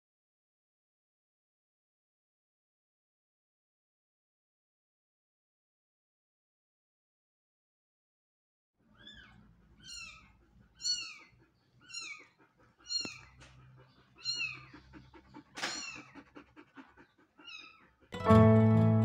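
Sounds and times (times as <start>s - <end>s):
kitten mewing: 9.0s - 11.3s.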